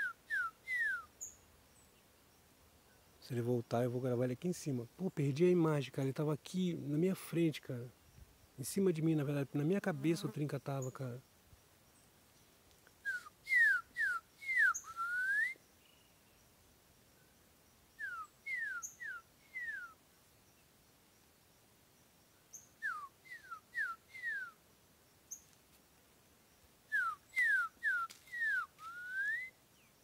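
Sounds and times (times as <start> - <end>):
bird whistled song: 0.0 - 1.4, 13.0 - 16.4, 18.0 - 20.0, 22.5 - 24.6, 26.9 - 30.0.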